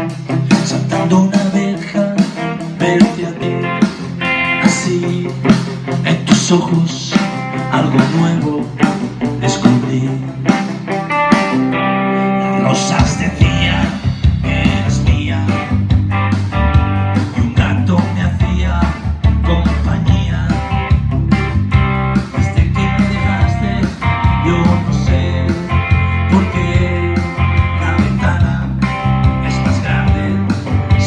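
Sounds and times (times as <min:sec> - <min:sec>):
electric guitar playing: 0:00.0 - 0:31.0
deep bass: 0:12.6 - 0:31.0.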